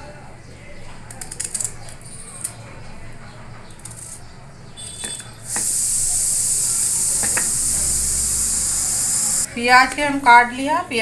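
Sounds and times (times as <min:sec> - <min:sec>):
loud steady hiss: 0:04.8 - 0:09.5.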